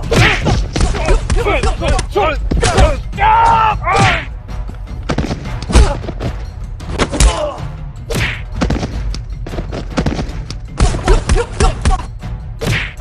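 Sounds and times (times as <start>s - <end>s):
fighters shouting: 0.0s - 4.4s.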